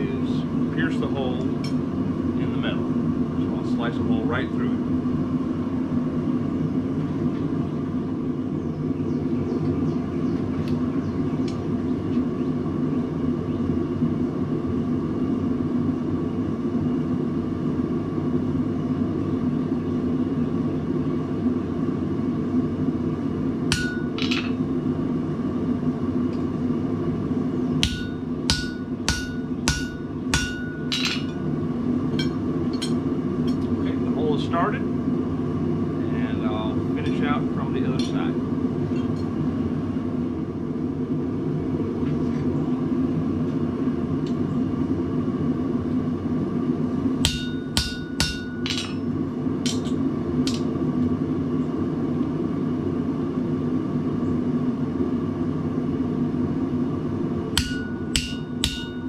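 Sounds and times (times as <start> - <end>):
hammer ringing on chisel: 23.7 - 24.5, 27.8 - 31.3, 47.3 - 49.0, 57.6 - 59.0.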